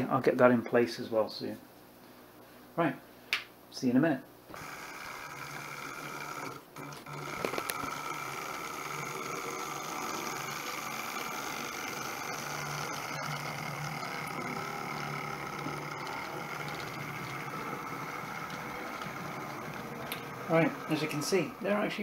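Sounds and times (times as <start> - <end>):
electric motor whine: 4.5 - 22.0
model train wheel rumble: 5.3 - 21.8.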